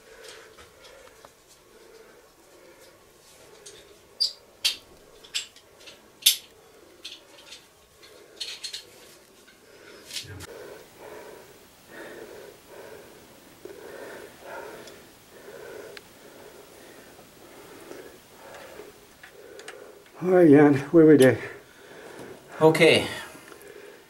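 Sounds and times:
heavy laboured breathing: 0.0 - 24.0.

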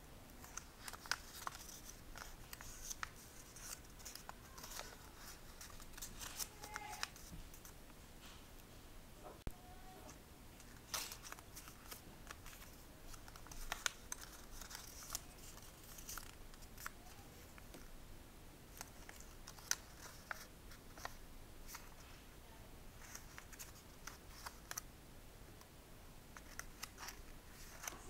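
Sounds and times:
paper crinkling while folded: 0.4 - 7.7, 10.6 - 17.8, 18.7 - 22.2, 23.0 - 24.8, 26.4 - 28.0
paper snapping: 10.9 - 12.4, 13.2 - 15.2.

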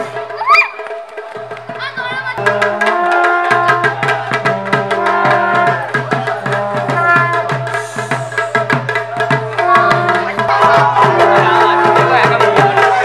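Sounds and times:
fast drumming: 0.0 - 13.0
sustained melody line: 2.4 - 7.6, 9.5 - 12.1.

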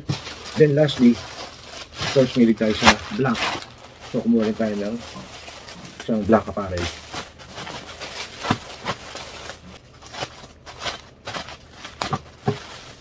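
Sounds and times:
plastic bag crinkling: 0.0 - 13.0.

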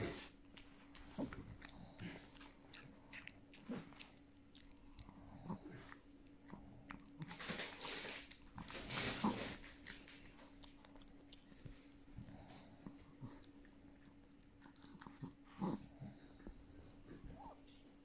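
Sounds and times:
dogs chewing and biting: 0.0 - 18.0.

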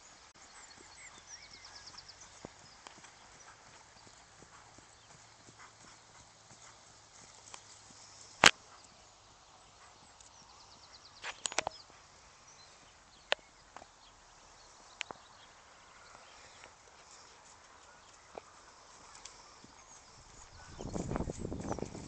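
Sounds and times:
hoofbeats on grass: 0.0 - 9.0, 16.0 - 22.0
sharp clicks: 11.2 - 11.8.

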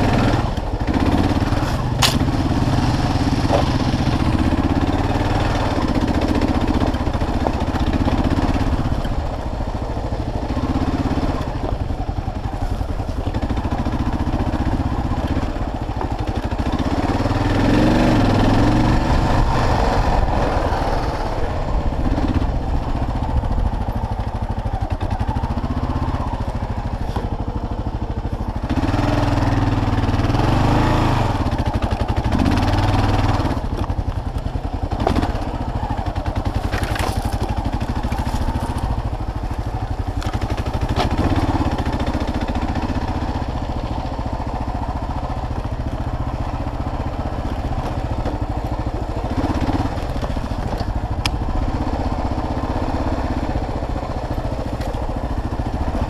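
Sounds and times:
motorcycle engine running: 0.0 - 56.0
bike knocking over rocks: 1.6 - 2.4, 36.4 - 41.2.

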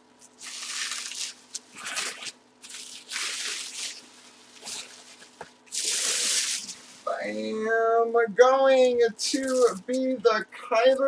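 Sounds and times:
bubble wrap crinkling: 0.2 - 7.1, 9.3 - 9.8.

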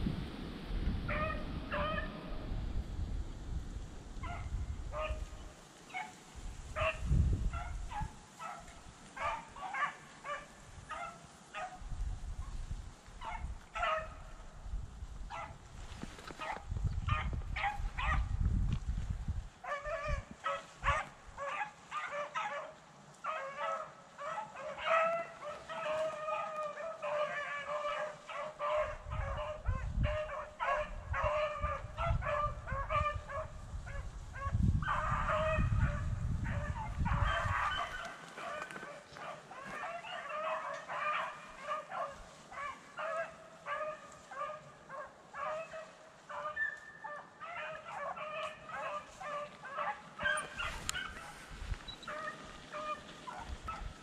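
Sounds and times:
microphone rumble: 0.0 - 5.5, 6.4 - 7.9, 14.5 - 20.3, 30.9 - 38.0
dogs baying and barking: 1.1 - 2.4, 4.2 - 5.3, 5.9 - 11.8, 13.2 - 14.4, 15.3 - 15.6, 16.3 - 18.3, 19.6 - 54.0.

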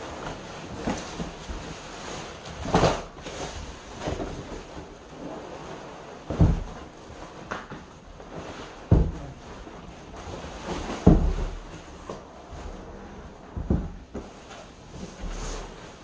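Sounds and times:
plastic wrap and cardboard rustling: 0.0 - 16.0
heavy low thump: 13.3 - 14.2.

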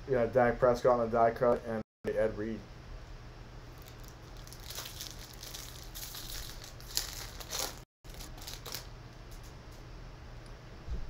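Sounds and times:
foil wrapper crinkling and tearing: 3.7 - 9.5.

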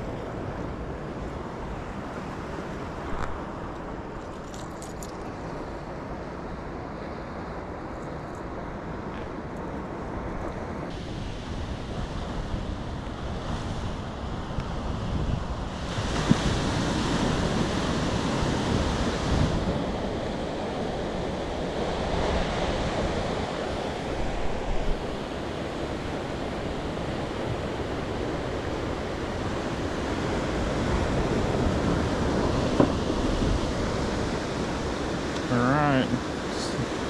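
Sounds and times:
ocean surf washing: 0.0 - 37.0
wind buffeting microphone: 9.8 - 35.4.

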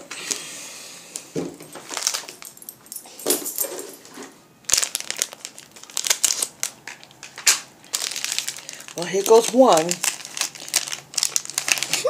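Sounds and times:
plastic snack packet crinkling: 1.8 - 2.6, 4.6 - 12.0.

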